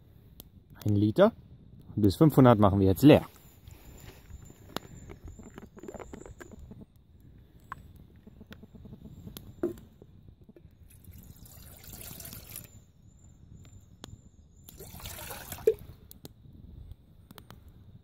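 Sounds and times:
water pouring into metal pot: 10.9 - 12.7, 14.7 - 15.8.

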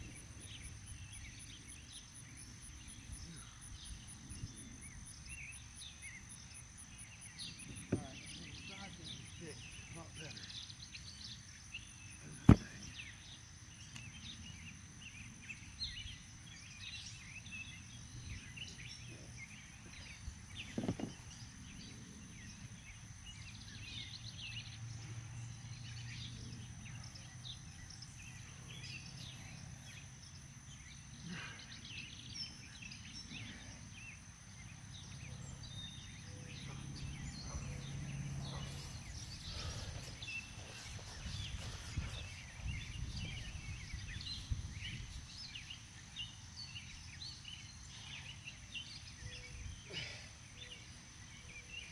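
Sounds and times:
dull thump: 7.7 - 8.2, 12.4 - 12.9, 20.6 - 21.2.

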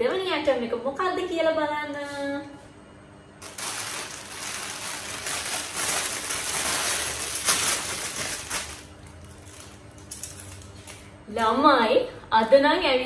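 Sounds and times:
plastic packaging crinkling: 3.4 - 11.0.

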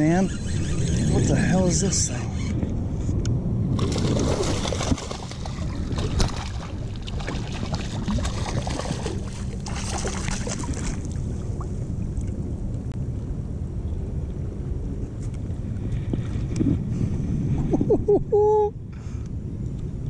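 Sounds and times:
wind rumble on microphone: 0.0 - 20.0
fish splashing in water: 3.8 - 11.2.

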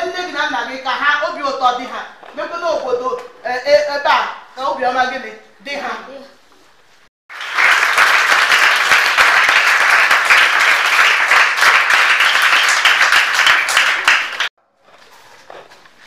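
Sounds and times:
children applauding: 7.3 - 14.5.

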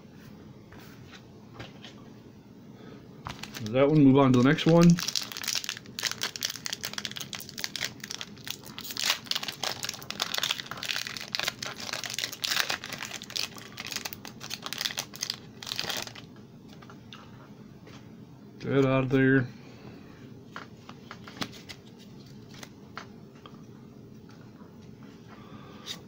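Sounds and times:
foil wrapper crinkling: 3.3 - 16.3.

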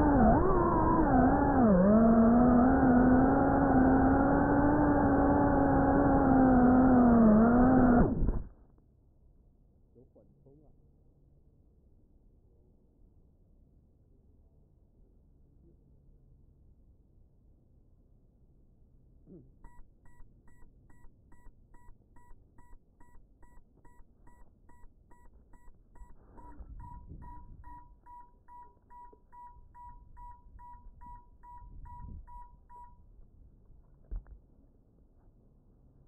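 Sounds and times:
short electronic beeps: 19.6 - 33.1.

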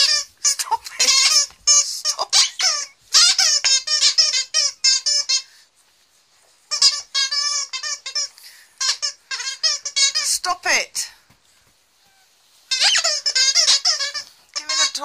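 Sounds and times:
squeaky dog toy squeaking: 0.0 - 5.5, 6.6 - 11.0, 12.0 - 15.0.

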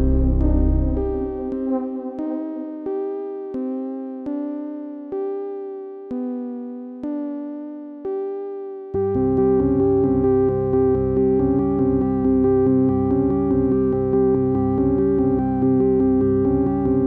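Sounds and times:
keyboard playing soft chords: 0.0 - 17.0.

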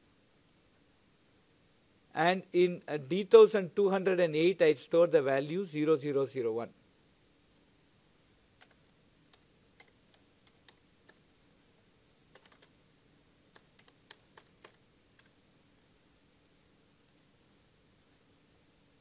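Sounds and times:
faint keyboard typing: 0.4 - 0.8, 7.5 - 7.8, 8.5 - 11.3, 12.3 - 12.8, 13.4 - 15.9, 17.0 - 17.3.

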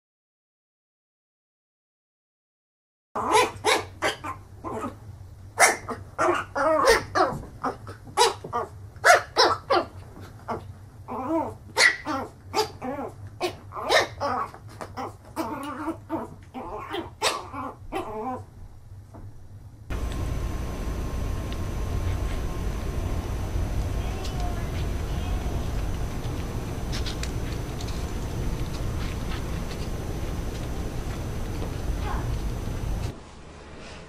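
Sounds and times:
puppy yapping: 3.2 - 5.0, 5.6 - 9.9, 10.5 - 18.4, 23.2 - 29.7.

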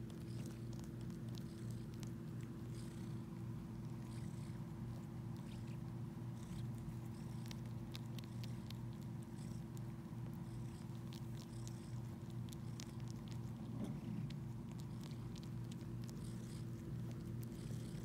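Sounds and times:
cat purring: 0.0 - 18.0.

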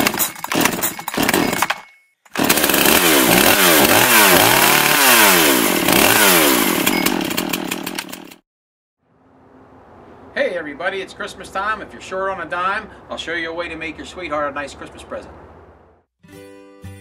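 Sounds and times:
chainsaw cutting wood: 0.0 - 8.4.

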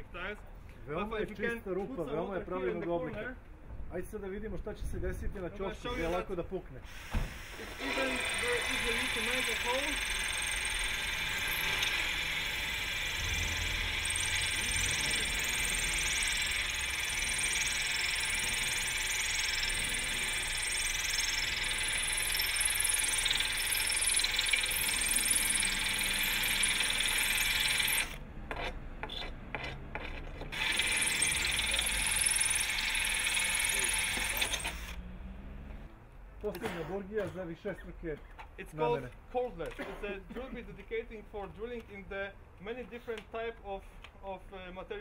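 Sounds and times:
cordless drill running: 6.9 - 28.2, 30.5 - 35.0
drill bit grinding into tile: 6.9 - 35.0.

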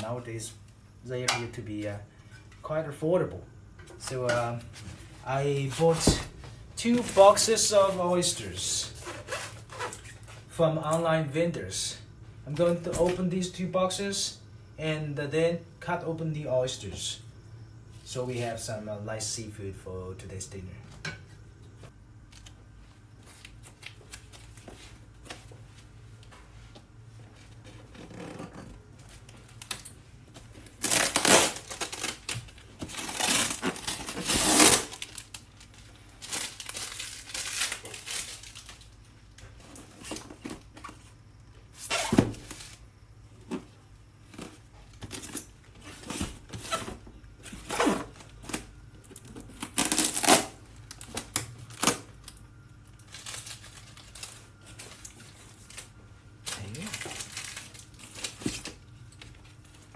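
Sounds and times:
packing tape ripping: 30.6 - 38.9, 41.8 - 42.8, 49.5 - 52.4.

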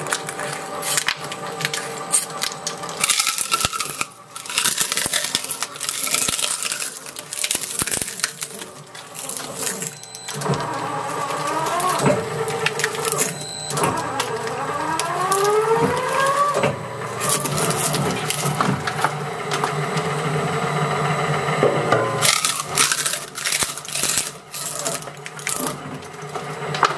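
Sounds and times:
wood cracking and splintering: 0.0 - 20.1, 22.2 - 26.9
shredder grinding and whining: 0.0 - 26.9.

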